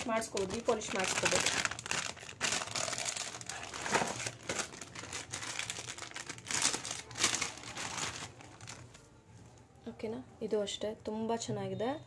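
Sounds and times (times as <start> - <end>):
plastic packaging crinkling: 0.0 - 9.1.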